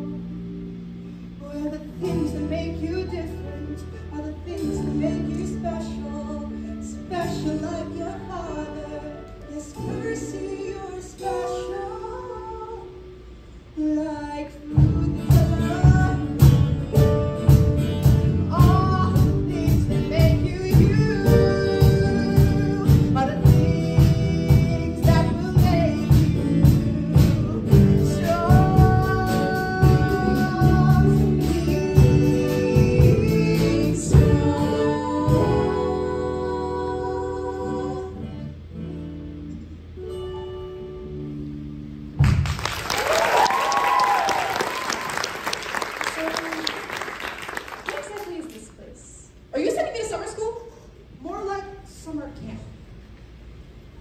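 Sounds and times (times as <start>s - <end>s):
person singing: 13.8s - 17.1s, 18.4s - 38.3s
rock band playing: 14.8s - 35.7s.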